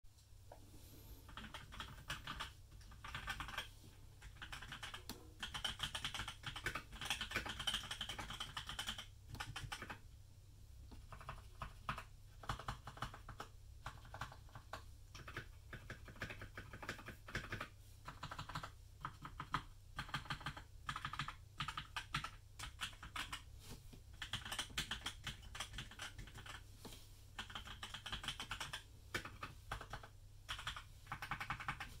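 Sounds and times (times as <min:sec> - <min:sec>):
mechanical keyboard keystroke clacks: 0:04.3 - 0:10.0.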